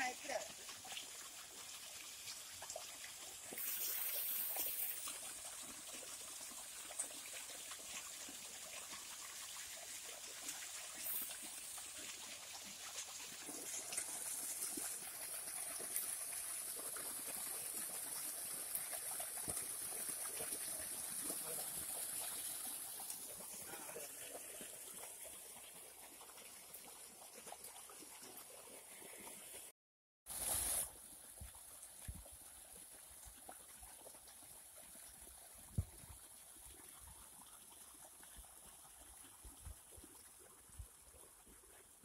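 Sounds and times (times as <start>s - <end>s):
water gushing and splashing: 0.0s - 29.7s.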